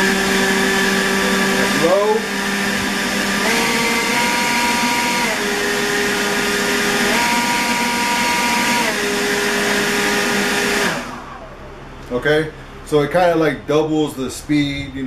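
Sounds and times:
leaf blower running: 0.0 - 11.5.

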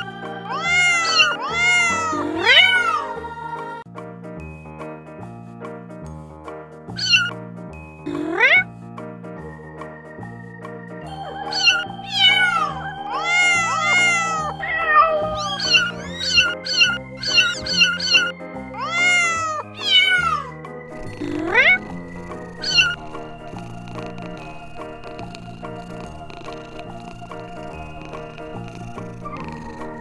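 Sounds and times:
kittens mewing: 0.0 - 3.2, 6.9 - 7.3, 8.1 - 8.7, 11.2 - 30.0
background music: 0.0 - 30.0.

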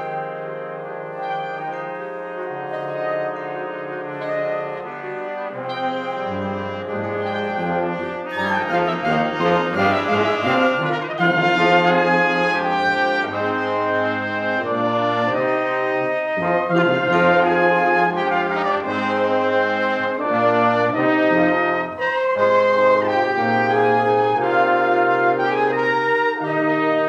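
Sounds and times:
brass ensemble playing chords: 0.0 - 27.0
tuba: 0.0 - 27.0.

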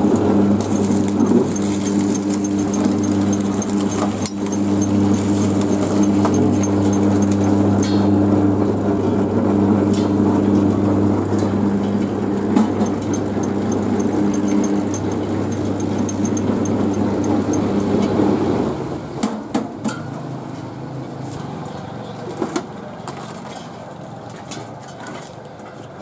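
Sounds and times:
rollers crushing cane: 0.2 - 8.1, 11.3 - 18.2
electric motor humming: 0.3 - 9.8, 10.4 - 18.6.

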